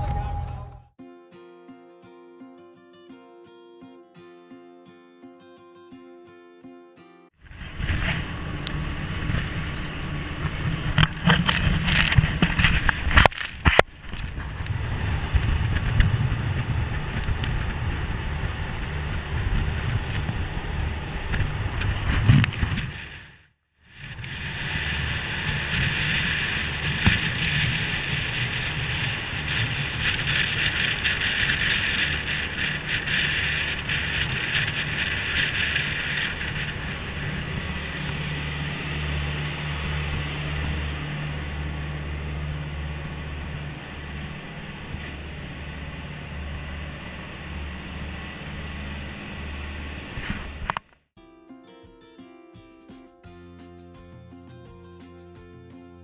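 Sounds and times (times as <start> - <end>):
boat engine drone: 0.0 - 1.0, 7.4 - 50.8
water rushing along hull: 7.5 - 13.6, 24.0 - 50.3
wind buffeting microphone: 7.5 - 23.3, 24.0 - 50.6.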